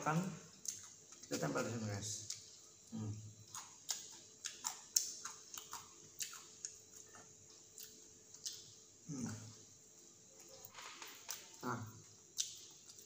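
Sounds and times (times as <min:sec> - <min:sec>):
chewing crunchy snacks: 0:02.2 - 0:09.4.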